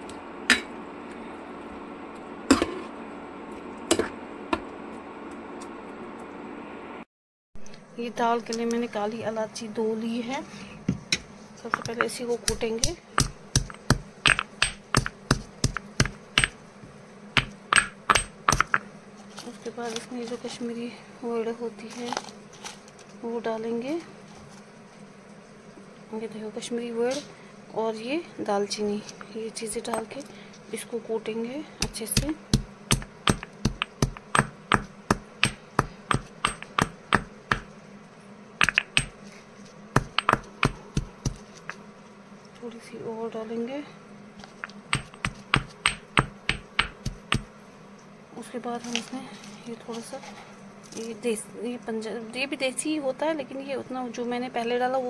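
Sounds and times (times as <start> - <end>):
stone pestle pounding in mortar: 11.8 - 16.6, 17.4 - 18.9, 31.8 - 37.7, 38.6 - 39.2, 40.0 - 41.8, 44.5 - 47.5.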